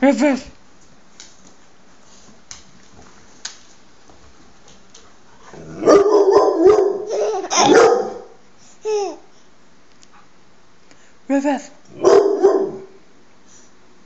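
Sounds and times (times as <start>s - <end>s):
dog yelp: 5.8s - 8.4s, 12.0s - 12.9s.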